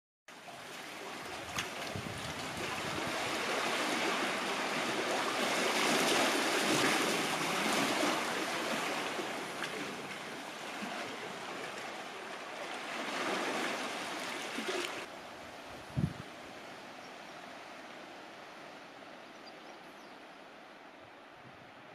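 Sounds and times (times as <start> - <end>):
sea water surging among rocks: 0.3 - 17.0.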